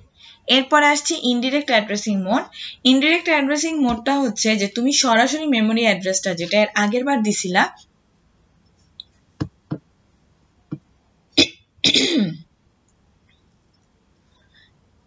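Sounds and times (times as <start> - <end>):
person coughing: 11.4 - 12.5.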